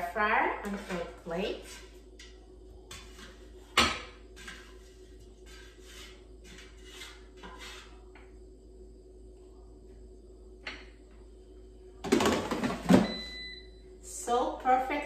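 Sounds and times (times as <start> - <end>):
fork scraping food: 4.3 - 8.1.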